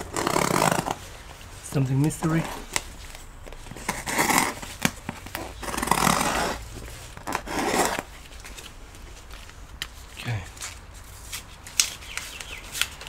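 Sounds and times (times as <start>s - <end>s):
cardboard flaps scraping: 2.2s - 8.7s.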